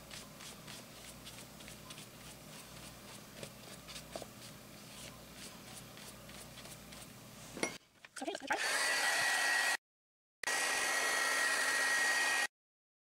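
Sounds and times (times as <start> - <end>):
paintbrush brushing on paper: 0.0 - 7.5.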